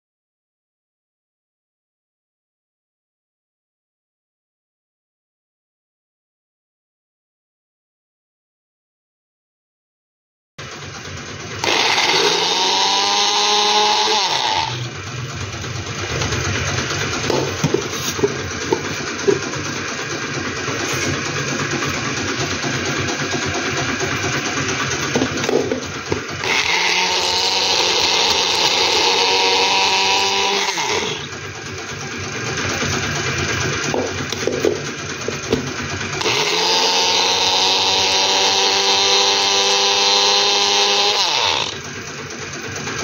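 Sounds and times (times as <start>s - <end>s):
blender motor grinding: 11.0s - 43.0s.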